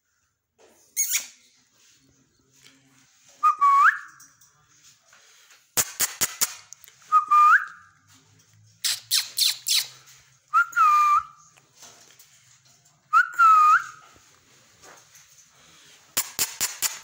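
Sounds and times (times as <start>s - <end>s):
sharp clicks: 5.8s - 6.8s, 16.2s - 17.0s
parakeet whistling: 8.8s - 9.9s.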